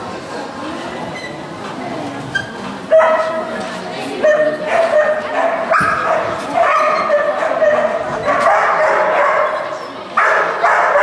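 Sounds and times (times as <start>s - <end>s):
dog barking and yipping: 4.7s - 9.6s, 10.2s - 11.0s.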